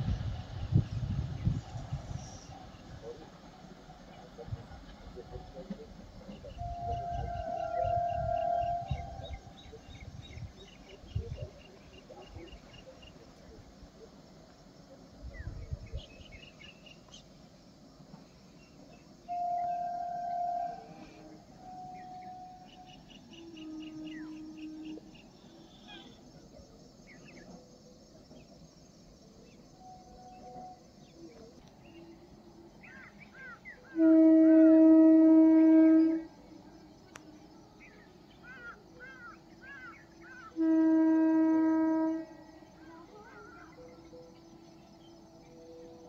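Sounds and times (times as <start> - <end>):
horn blasts: 6.4 - 9.6, 19.3 - 25.1, 33.9 - 37.2, 40.5 - 43.8
birds chirping: 35.2 - 41.1.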